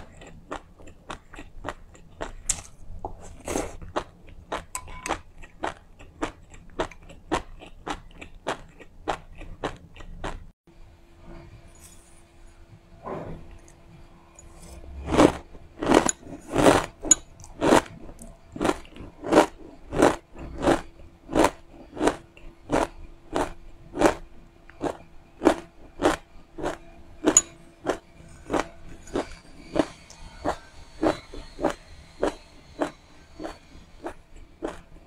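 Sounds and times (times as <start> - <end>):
crunchy chewing: 0.0 - 10.5, 14.4 - 35.0.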